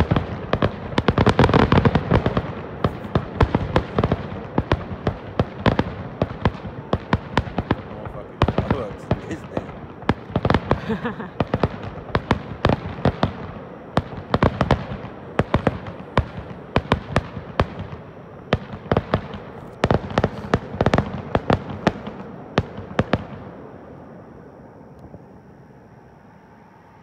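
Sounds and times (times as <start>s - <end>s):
fireworks shells bursting: 0.0s - 13.4s.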